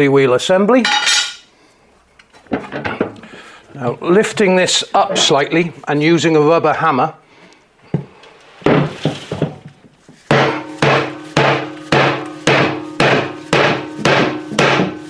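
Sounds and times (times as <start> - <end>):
rubber hammer blows on metal: 10.3 - 15.0
metallic ringing from drum: 10.4 - 15.0.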